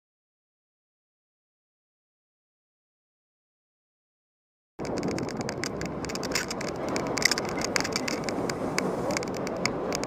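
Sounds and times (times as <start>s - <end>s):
bike rattles and clicks: 4.8s - 10.0s
road and traffic noise: 4.8s - 10.0s.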